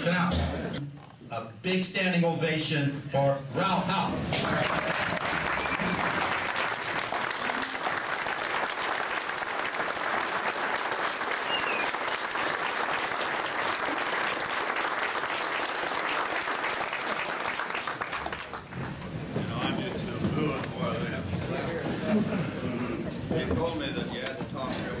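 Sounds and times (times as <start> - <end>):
audience clapping: 4.2 - 20.9.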